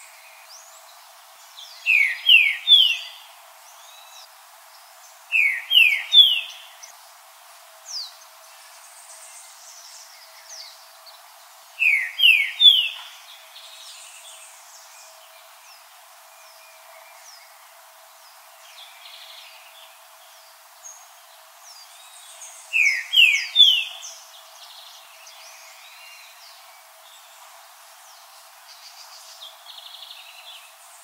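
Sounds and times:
faint high bird calls: 1.7s - 4.3s, 5.3s - 7.0s, 11.8s - 15.6s, 21.8s - 27.6s
bird whistling song: 1.8s - 3.2s, 5.3s - 6.7s, 11.8s - 13.1s, 22.7s - 24.1s.

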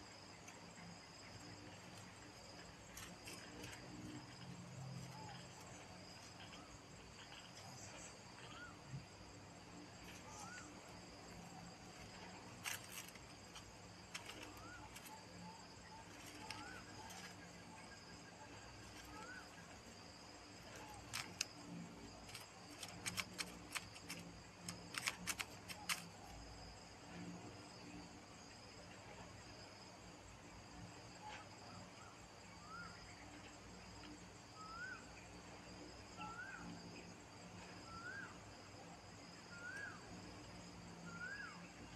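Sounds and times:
high insect drone: 0.0s - 41.9s
sharp crackle: 22.3s - 26.1s.

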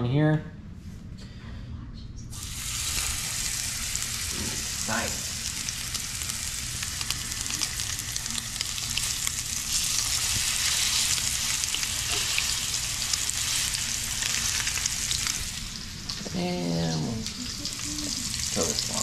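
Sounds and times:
fish sizzling in hot oil: 2.4s - 19.0s.

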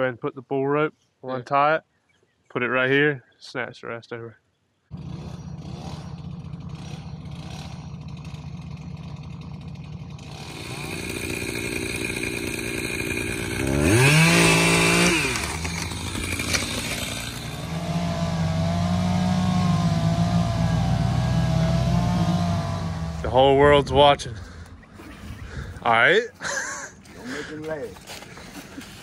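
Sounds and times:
chainsaw running: 4.9s - 24.7s
truck engine: 4.9s - 25.2s.

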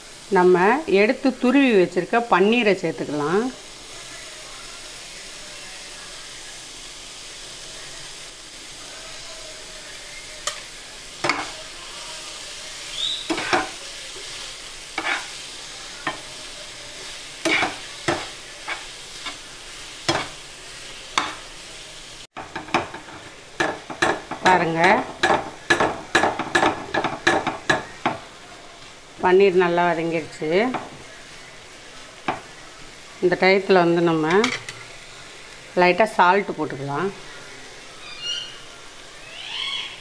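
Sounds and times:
food sizzling in a frying pan: 0.0s - 40.0s
metal spatula scraping: 10.4s - 11.7s, 13.1s - 14.4s, 15.0s - 20.4s.

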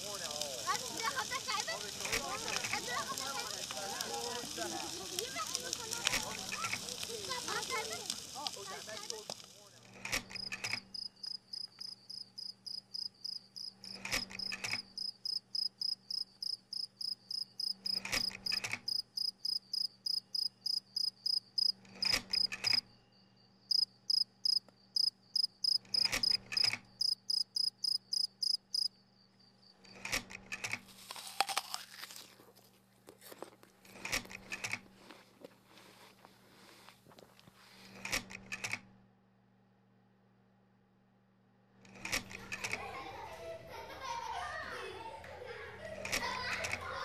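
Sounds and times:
insect chirping: 10.4s - 29.9s.

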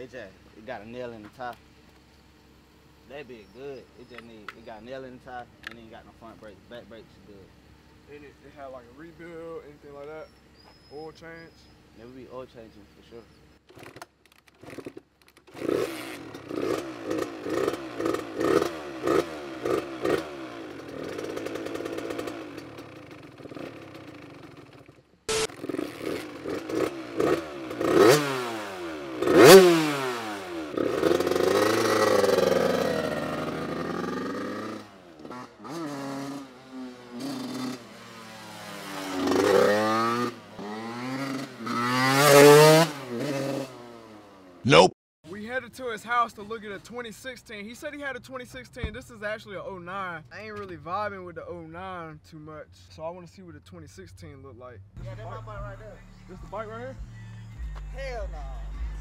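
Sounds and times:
dirt bike engine revving: 14.6s - 44.9s.

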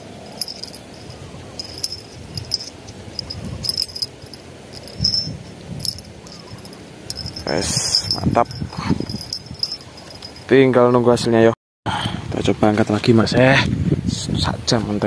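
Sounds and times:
small bells tinkling: 0.0s - 10.6s.

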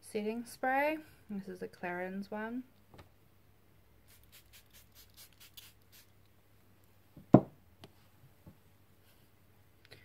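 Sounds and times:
spray bottle spritzing: 4.1s - 6.2s.

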